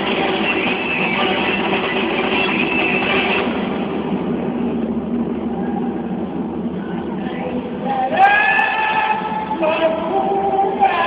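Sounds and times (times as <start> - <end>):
dance music over loudspeakers: 0.0 - 11.0.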